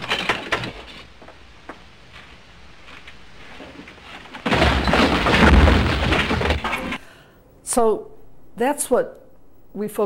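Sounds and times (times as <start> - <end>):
film hiss: 0.0 - 4.5
loud crash: 4.4 - 7.0.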